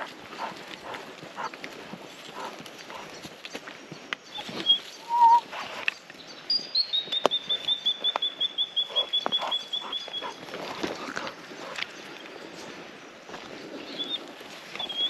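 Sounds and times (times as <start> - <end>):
footsteps crunching: 0.0 - 5.9, 7.0 - 15.0
bird calling short high notes: 4.4 - 5.4.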